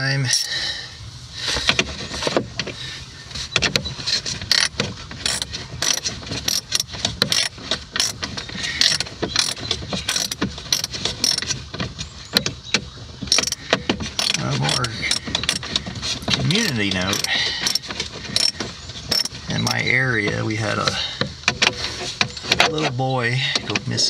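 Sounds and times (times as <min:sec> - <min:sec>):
rapid mechanical clicking and clattering: 0:04.4 - 0:11.9, 0:13.2 - 0:19.7.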